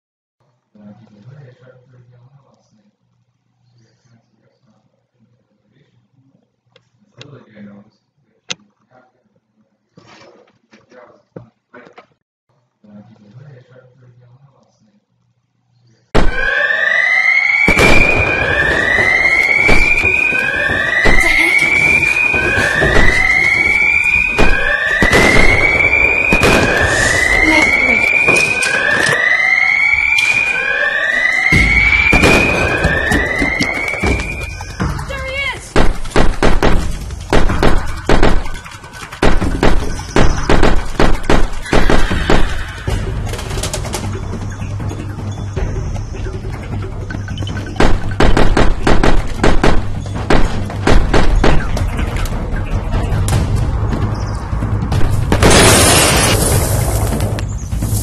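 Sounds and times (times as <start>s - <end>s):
rapid gunshots: 16.2s - 16.5s, 17.7s - 28.6s, 31.5s - 34.8s, 35.7s - 44.0s, 47.7s - 52.4s
whooping electronic alarm: 16.2s - 35.6s.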